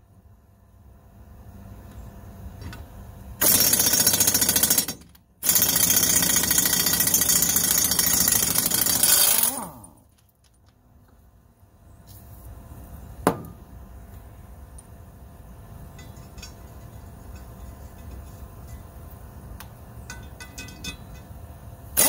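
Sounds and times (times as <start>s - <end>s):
impact wrench hammering: 13.3s - 13.6s.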